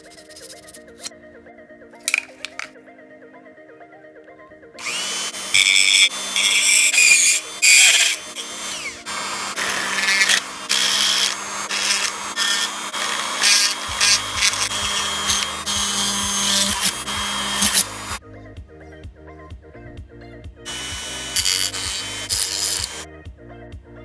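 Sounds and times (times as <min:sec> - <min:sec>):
rotary tool grinding plastic: 0:04.8 - 0:18.2, 0:20.7 - 0:23.0
electronic music with bass beat: 0:20.6 - 0:23.4.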